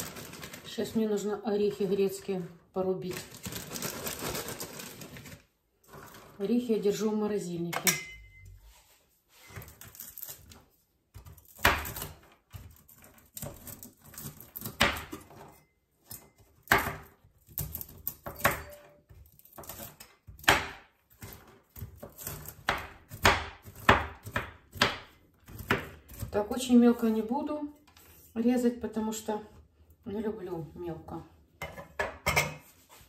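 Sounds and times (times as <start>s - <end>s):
knife chopping on cutting board: 16.6s - 26.3s.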